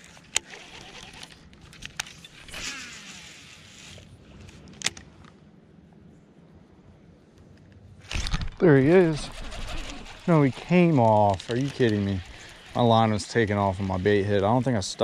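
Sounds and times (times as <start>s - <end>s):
fishing reel spool whirring: 0.0s - 1.5s, 2.2s - 4.1s, 8.7s - 15.0s
fishing reel clicks: 9.1s - 15.0s.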